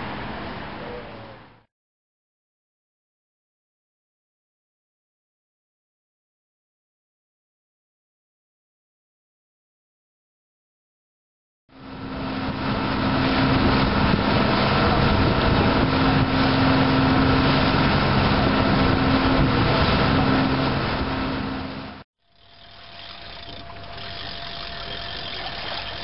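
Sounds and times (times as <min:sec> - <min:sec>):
boat engine hum: 0:00.0 - 0:01.7, 0:11.7 - 0:26.0
water rushing along hull: 0:00.0 - 0:01.7, 0:11.7 - 0:26.0.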